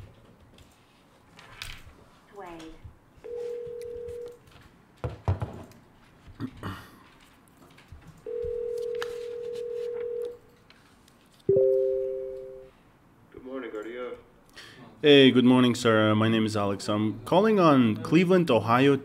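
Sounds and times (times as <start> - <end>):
telephone ringback tone: 3.2 - 4.3, 8.3 - 10.3, 11.5 - 12.7
two-pitch tone: 11.5 - 12.7.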